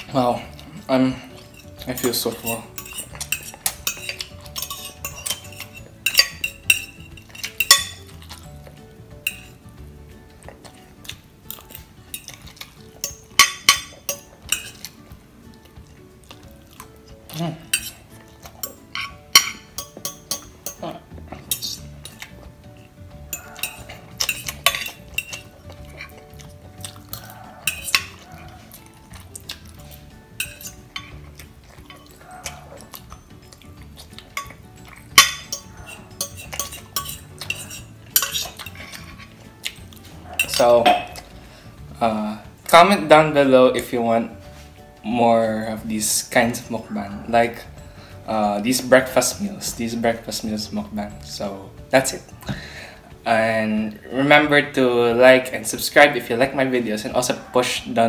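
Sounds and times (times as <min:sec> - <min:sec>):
fork scraping glass dish: 0:01.3 - 0:08.5, 0:21.5 - 0:22.2, 0:23.3 - 0:26.2, 0:27.1 - 0:28.5, 0:34.4 - 0:39.4.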